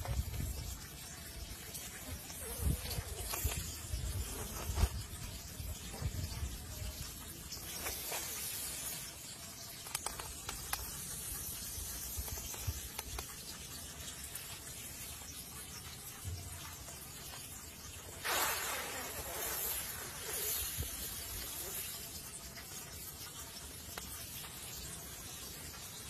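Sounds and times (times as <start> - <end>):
snake hissing: 18.2 - 22.3.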